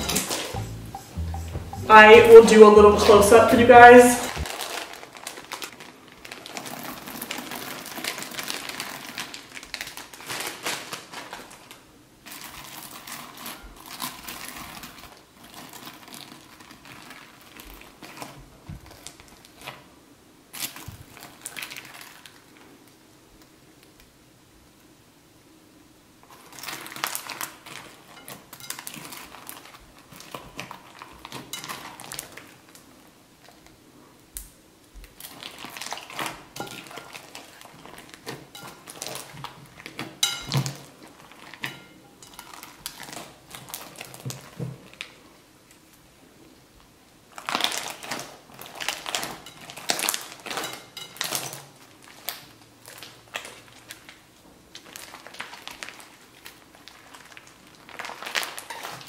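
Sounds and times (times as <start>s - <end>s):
slime crackling and popping: 34.4s - 41.9s, 47.3s - 59.0s.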